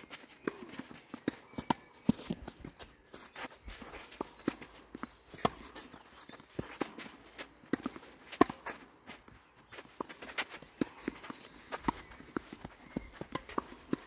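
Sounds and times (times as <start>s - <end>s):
footsteps scuffing on clay: 0.0s - 14.0s
racket striking tennis ball: 4.2s - 8.8s.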